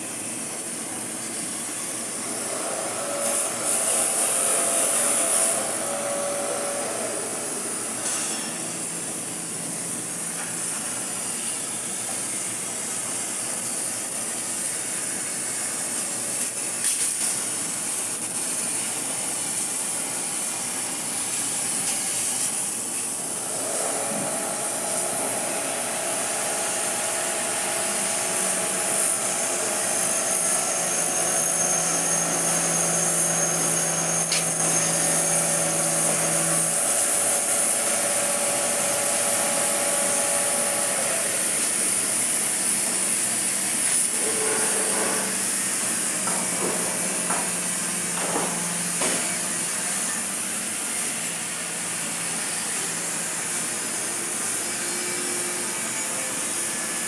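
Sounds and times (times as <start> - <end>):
machine hum: 23.1 - 42.8.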